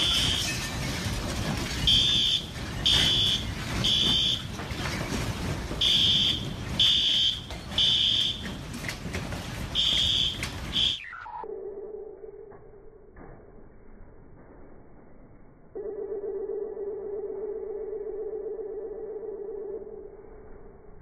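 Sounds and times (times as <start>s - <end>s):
fire alarm beeping: 0.0s - 0.6s, 1.8s - 4.6s, 5.8s - 8.6s, 9.6s - 12.1s.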